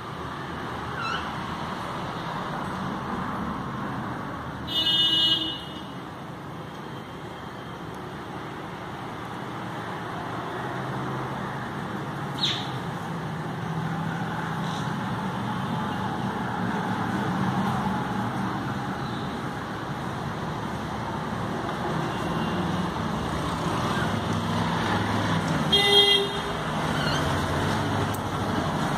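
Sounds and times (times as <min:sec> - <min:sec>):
street traffic noise: 0:00.0 - 0:28.9
vehicle horn toot: 0:04.7 - 0:05.9, 0:25.7 - 0:26.5.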